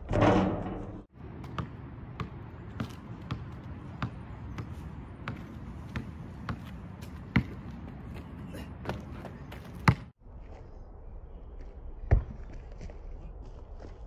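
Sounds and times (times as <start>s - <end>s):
basketball bouncing on asphalt: 1.1s - 10.2s.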